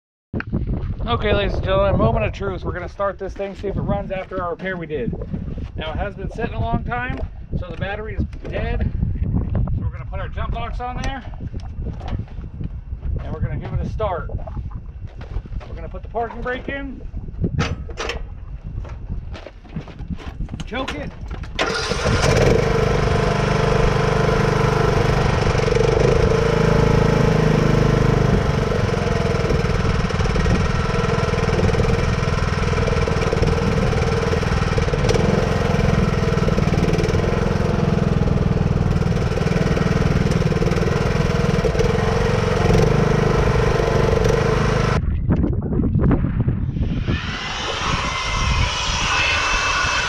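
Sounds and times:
lawn tractor engine running: 21.6s - 45.0s.

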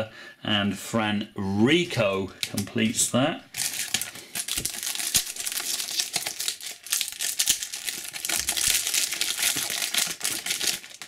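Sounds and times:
plastic wrapper crinkling and tearing: 3.5s - 11.0s.

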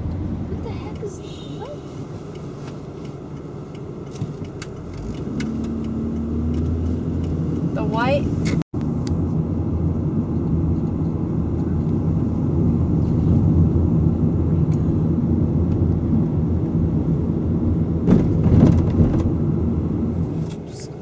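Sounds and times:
car road and engine rumble: 0.0s - 21.0s
knocks inside car: 18.0s - 19.3s.

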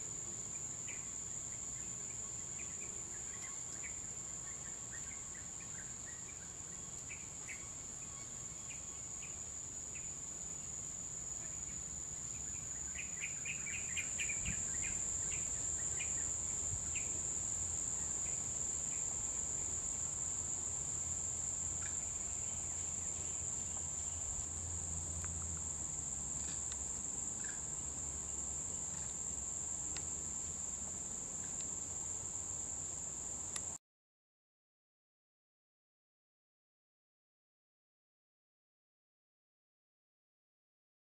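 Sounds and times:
insect chirps: 0.0s - 33.8s
insects droning: 0.0s - 33.8s.

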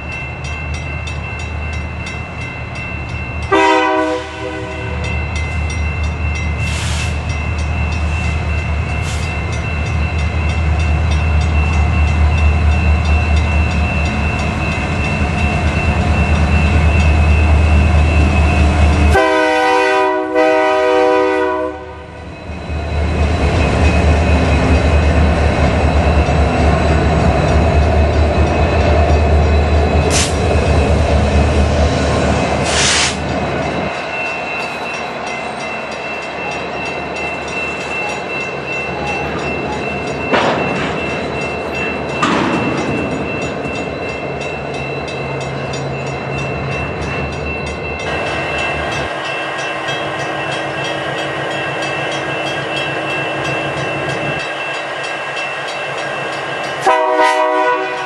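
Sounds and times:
diesel locomotives passing: 0.0s - 58.0s
freight cars rolling on rails: 0.0s - 58.0s
locomotive air horn chord: 3.5s - 5.0s, 19.1s - 22.1s, 56.8s - 58.0s.

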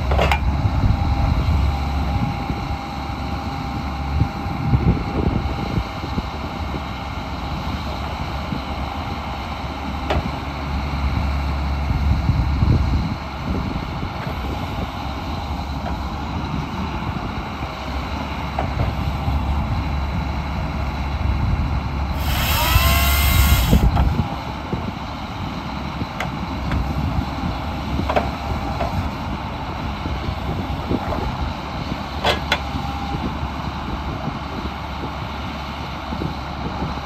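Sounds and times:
diesel engine running: 0.0s - 37.0s
loud hiss with squealing tones: 22.2s - 23.9s.

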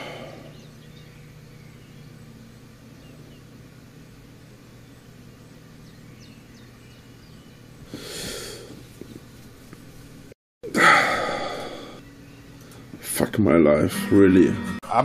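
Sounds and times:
man sighing heavily: 0.0s - 0.6s, 10.6s - 12.0s
low steady hum: 0.0s - 15.0s.

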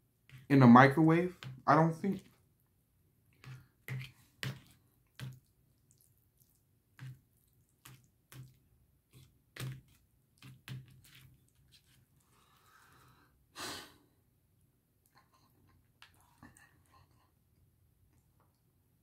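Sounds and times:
person chewing with mouth clicks: 4.6s - 8.6s.

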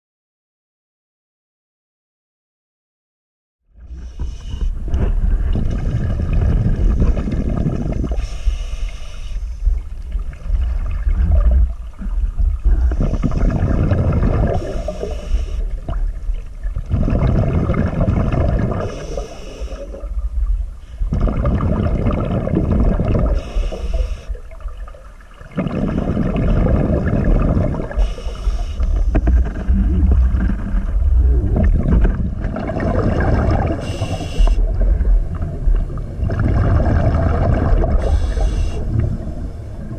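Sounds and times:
exhaled bubbles rumbling: 3.7s - 39.9s
regulator inhale hiss: 3.9s - 5.8s, 8.0s - 9.8s, 14.5s - 15.8s, 18.8s - 20.1s, 23.3s - 24.4s, 27.9s - 29.3s, 33.8s - 34.7s, 38.0s - 39.8s.

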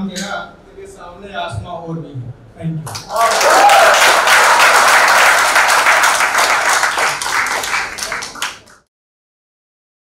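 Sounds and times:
audience applauding: 2.9s - 8.9s.

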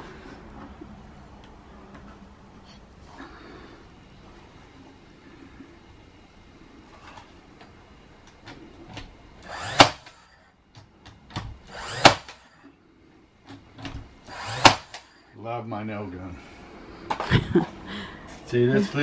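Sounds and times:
nail gun firing into wood: 9.5s - 10.3s, 11.3s - 12.6s, 13.8s - 15.1s.

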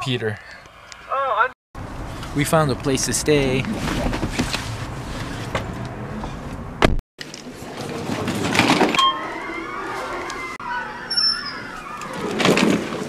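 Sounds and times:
suitcase wheels rolling: 7.2s - 13.0s
short beep: 9.0s - 9.7s.

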